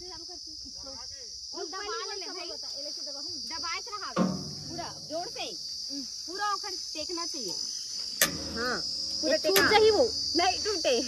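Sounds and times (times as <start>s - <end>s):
high-pitched insect chirring: 0.0s - 11.0s
people talking: 1.6s - 7.6s, 8.6s - 11.0s
sharp click: 8.2s - 8.6s.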